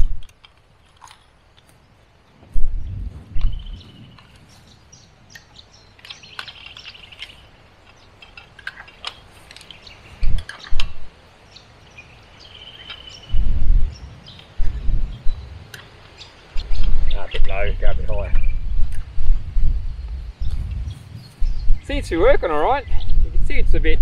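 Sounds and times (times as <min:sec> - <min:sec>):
birds chirping and trilling: 0:00.7 - 0:24.0
loud low rumbles: 0:02.4 - 0:05.2, 0:13.3 - 0:23.5.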